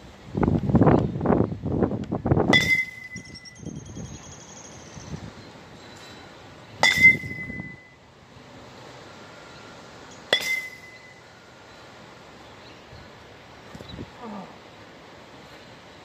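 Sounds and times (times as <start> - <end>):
metal bat striking ball: 2.5 - 3.4, 6.8 - 7.8, 10.3 - 11.0.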